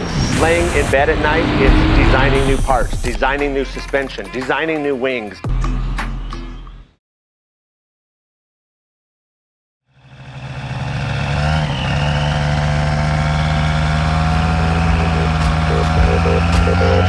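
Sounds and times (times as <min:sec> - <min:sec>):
paramotor engine running: 0:10.0 - 0:17.0.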